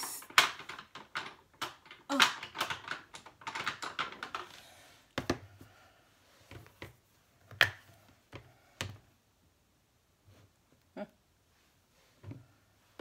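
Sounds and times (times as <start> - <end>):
craft supplies knocking on desk: 5.2 - 5.4.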